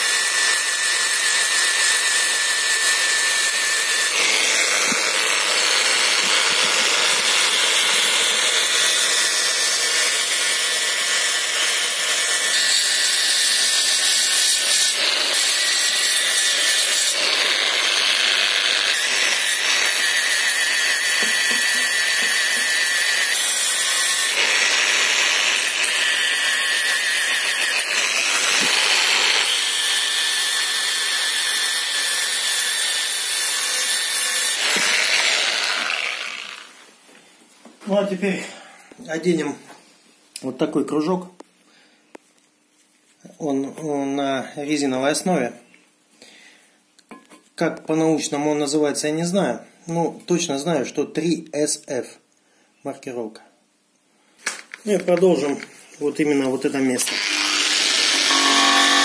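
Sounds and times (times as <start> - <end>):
angle grinder sanding metal: 0.0 - 36.8, 56.8 - 59.0.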